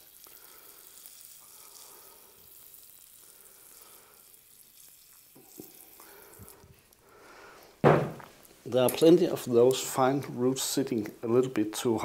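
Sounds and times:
water trickling into bucket: 0:00.0 - 0:06.7
soft knocks: 0:07.8 - 0:08.3.

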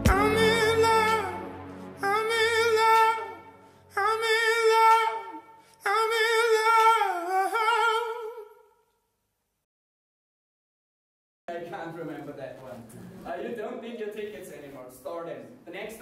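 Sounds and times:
person singing with vibrato: 0:00.0 - 0:08.8.

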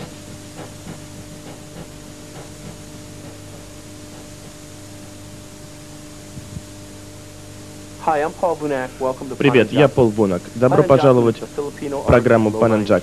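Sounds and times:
low mains hum: 0:00.0 - 0:13.0
tape hiss: 0:03.8 - 0:13.0
faint music: 0:08.0 - 0:13.0.

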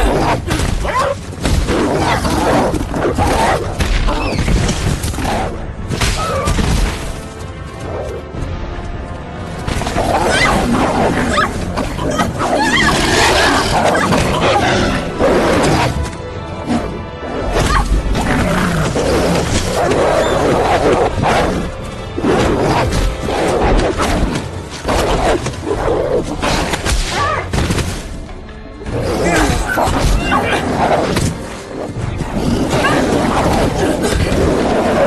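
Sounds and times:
film music: 0:00.0 - 0:35.0
wolves snarling: 0:09.8 - 0:16.0, 0:16.6 - 0:26.8, 0:28.8 - 0:35.0.

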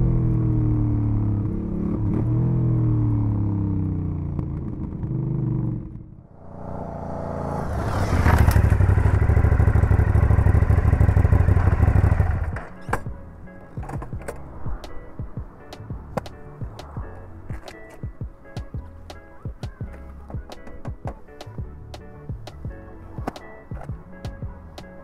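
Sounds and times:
motorcycle engine running: 0:00.0 - 0:12.7.

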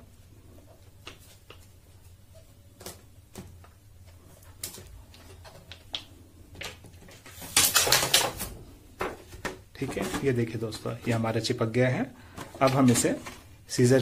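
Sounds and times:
plastic film crinkles and taps: 0:04.4 - 0:08.4.

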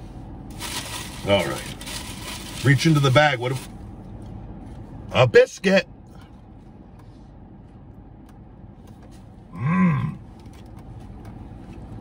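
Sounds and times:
low background hum: 0:00.0 - 0:12.0
man humming mmm: 0:09.5 - 0:10.3.

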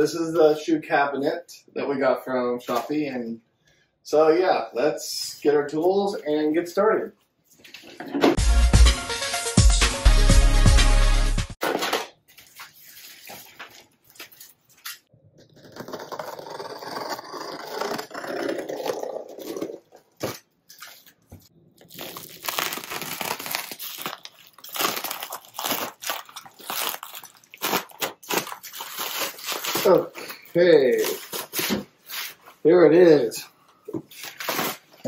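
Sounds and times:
plastic crinkling: 0:12.2 - 0:18.1, 0:20.3 - 0:32.4
box cutter slicing plastic wrap: 0:15.6 - 0:19.6.

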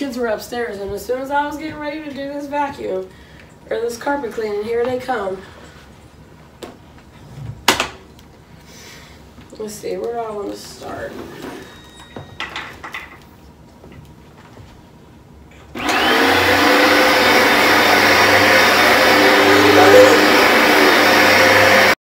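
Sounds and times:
carpet cleaner motor running: 0:15.8 - 0:22.0.

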